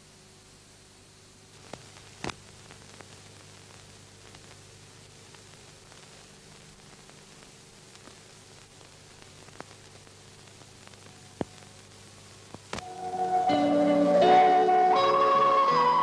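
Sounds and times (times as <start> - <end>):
faint steady hiss: 0.0 - 16.0
film soundtrack clicks and pops: 1.6 - 12.9.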